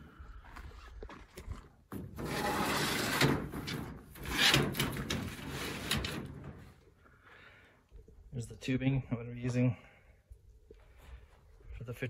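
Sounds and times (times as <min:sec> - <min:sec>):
rough scraping and rubbing: 0:02.0 - 0:06.7.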